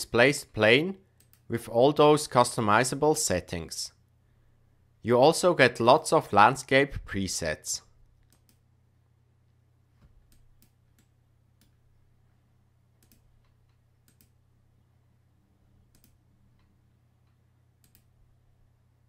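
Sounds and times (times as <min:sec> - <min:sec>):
low steady hum: 0:00.0 - 0:19.0
computer mouse clicks: 0:01.2 - 0:01.5, 0:08.2 - 0:08.6, 0:10.2 - 0:11.8, 0:13.0 - 0:14.4, 0:15.9 - 0:18.1.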